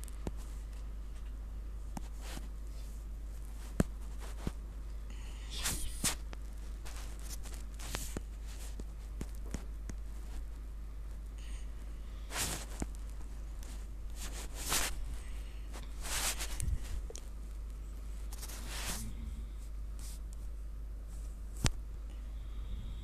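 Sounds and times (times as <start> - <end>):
steady low hum: 0.0 - 23.0
soft rustling swishes: 5.4 - 10.7, 12.2 - 17.2, 18.2 - 19.2.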